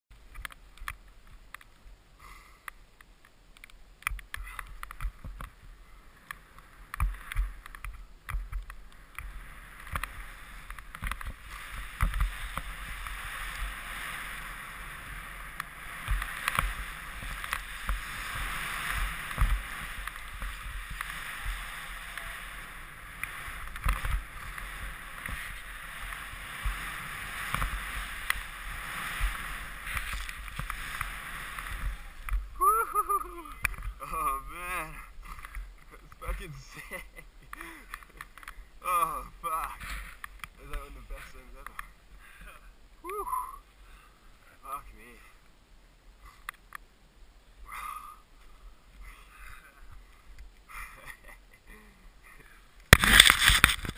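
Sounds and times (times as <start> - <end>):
snow hiss under board: 4.2 - 45.4, 47.6 - 53.9.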